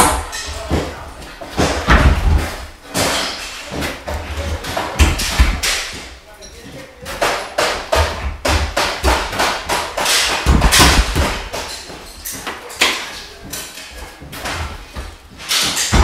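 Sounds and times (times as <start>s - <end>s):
hammer blows on floorboards: 0.0s - 16.0s.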